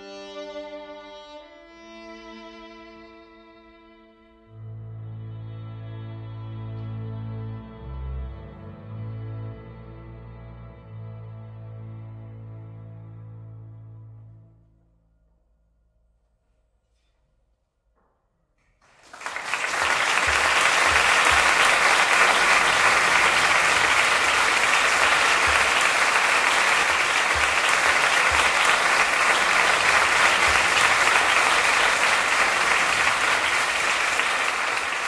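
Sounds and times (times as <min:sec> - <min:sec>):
audience applause: 0:18.8 - 0:35.0.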